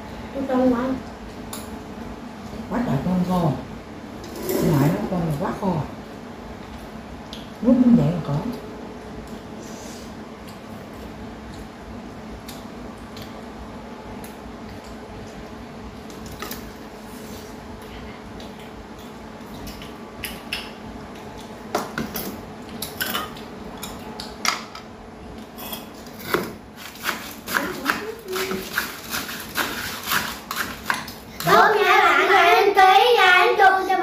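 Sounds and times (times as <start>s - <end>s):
steady hum: 0.0s - 34.0s
person speaking: 31.4s - 34.0s.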